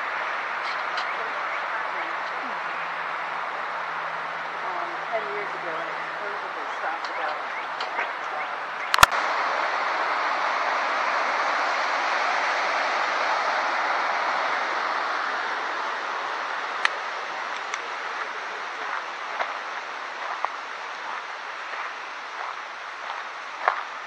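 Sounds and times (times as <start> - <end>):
creek water flowing: 0.0 - 24.0.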